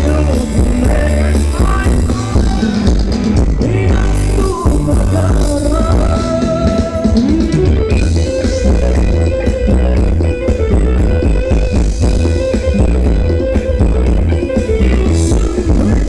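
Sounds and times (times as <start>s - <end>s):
person singing: 0.0s - 9.0s, 14.5s - 16.0s
live band dance music: 0.0s - 16.0s.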